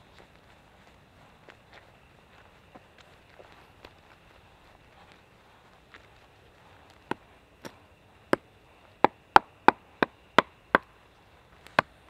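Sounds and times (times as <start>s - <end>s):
hand tool striking wood: 7.1s - 10.9s.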